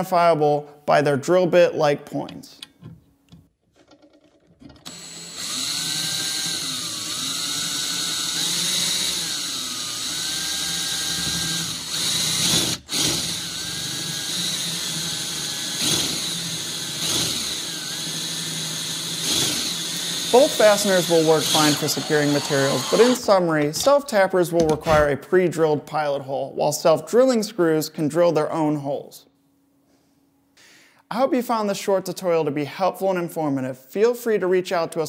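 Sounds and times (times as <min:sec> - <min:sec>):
power drill driving screw into metal: 0:04.8 - 0:23.4.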